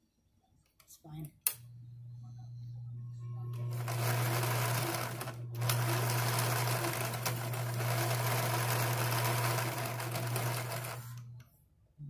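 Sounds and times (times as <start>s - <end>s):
sewing machine motor hum: 3.5s - 11.5s.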